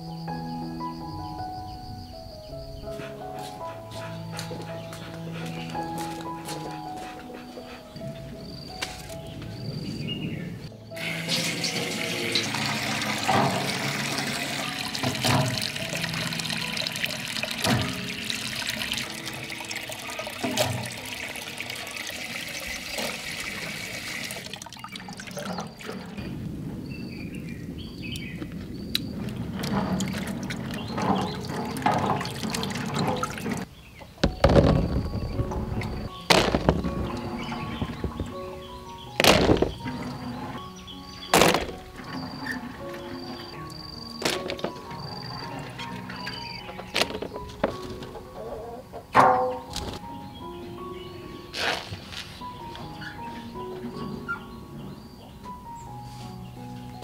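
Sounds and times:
background music: 0:00.0 - 0:25.6, 0:26.4 - 0:57.0
tap water running into sink: 0:11.0 - 0:26.0, 0:30.0 - 0:33.7
plums tumbling onto tray: 0:34.2 - 0:38.5, 0:39.2 - 0:40.5, 0:41.3 - 0:43.3, 0:44.2 - 0:48.4.

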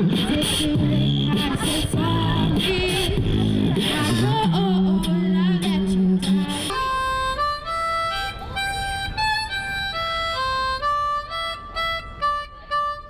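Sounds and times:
harmonica melody: 0:06.2 - 0:13.0.

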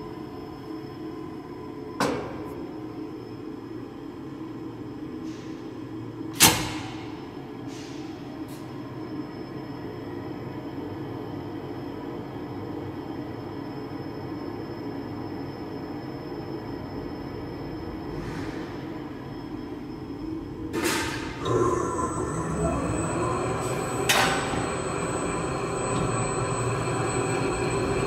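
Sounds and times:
slicer mechanical hum: 0:20.3 - 0:28.0.

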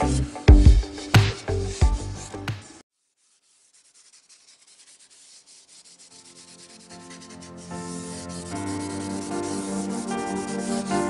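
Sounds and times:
background music: 0:00.0 - 0:02.8, 0:06.9 - 0:11.0
sanding wood by hand: 0:00.0 - 0:11.0.

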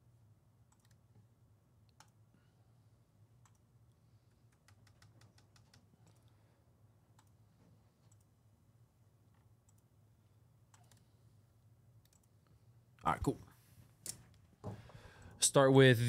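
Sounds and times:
computer keyboard typing: 0:00.7 - 0:01.0, 0:04.3 - 0:06.3, 0:10.7 - 0:11.0.

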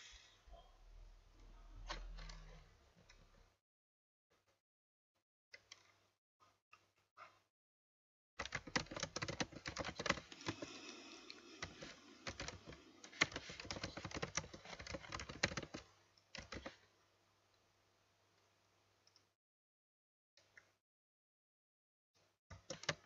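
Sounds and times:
keyboard typing: 0:08.4 - 0:16.8, 0:22.5 - 0:23.0.

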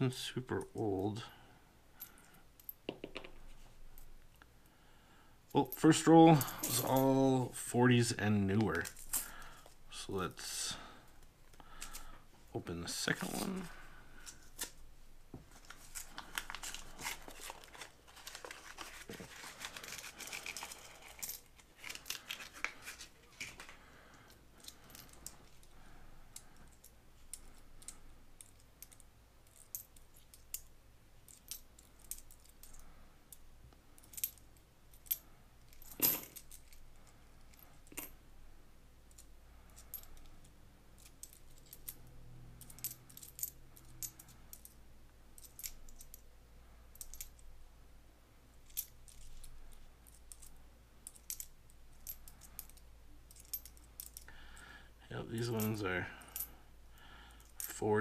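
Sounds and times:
paper wrapper tearing and crinkling: 0:15.7 - 0:20.7
coins clinking: 0:35.0 - 0:36.8.

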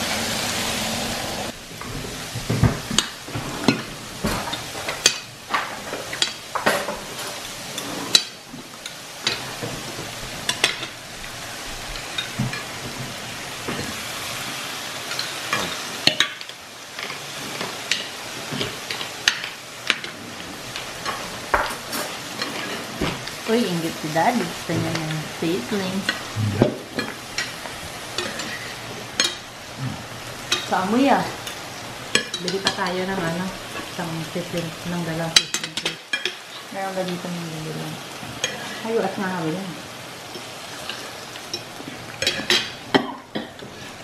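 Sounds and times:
food sizzling on hot plate: 0:00.0 - 0:44.0
cutlery clinking on plates: 0:21.0 - 0:23.2, 0:28.2 - 0:29.4, 0:35.4 - 0:36.6, 0:40.3 - 0:43.9.

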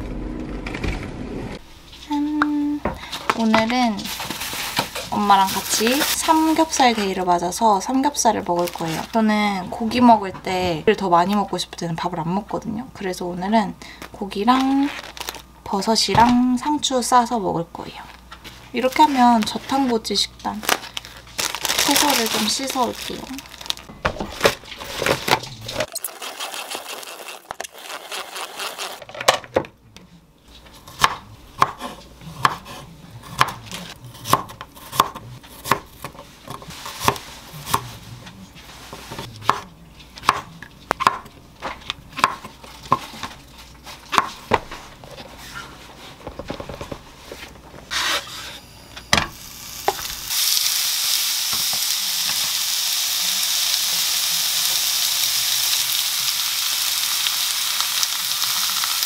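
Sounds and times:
knife chopping on wooden board: 0:30.9 - 0:33.6, 0:34.2 - 0:37.9, 0:39.1 - 0:43.3
meat sizzling in frying pan: 0:49.2 - 0:59.0.

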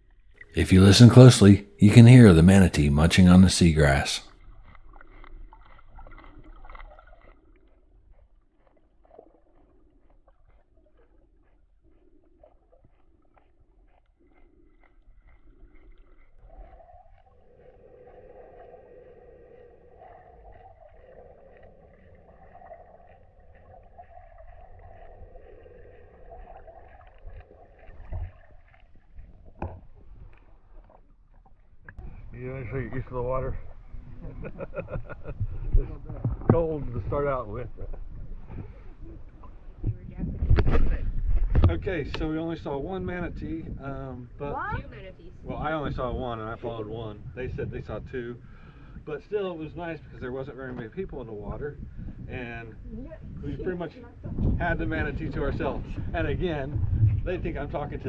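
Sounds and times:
manatee munching seagrass underwater: 0:02.4 - 0:32.3.

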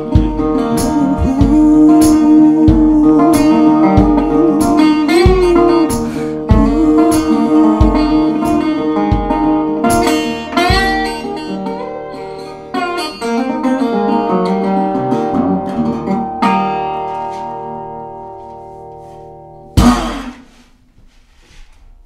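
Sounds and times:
resonator guitar playing: 0:00.0 - 0:20.4
sharp hit on guitar: 0:19.8 - 0:20.6.

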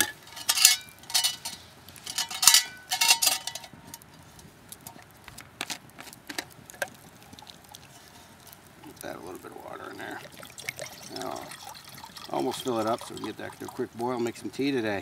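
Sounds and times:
metal cup clinking and clanking: 0:00.0 - 0:03.8.

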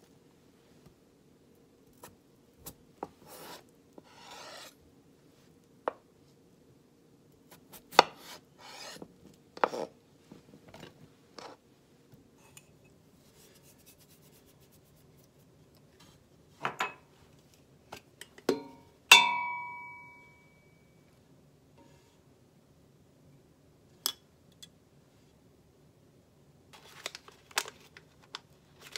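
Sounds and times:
knife chopping on cutting board: 0:07.6 - 0:09.0.

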